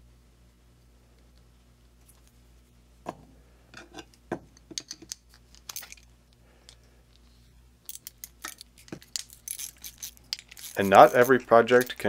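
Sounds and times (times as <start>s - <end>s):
metal clicks and clinks of ratchet: 7.9s - 12.0s.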